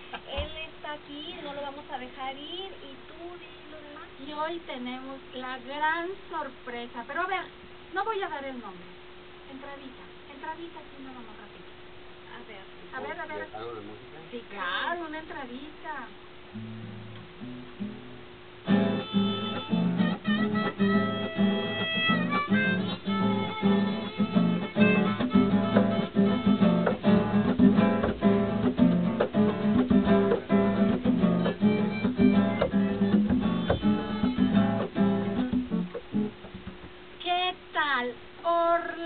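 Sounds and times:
strummed acoustic guitar: 16.5 - 36.8
held harmonica melody: 18.7 - 28.5, 30.1 - 35.3.

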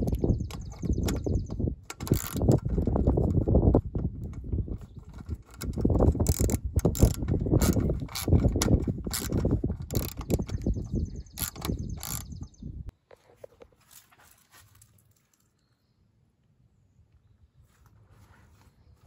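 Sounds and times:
socket ratchet clicking: 0.0 - 3.4, 5.1 - 12.4.

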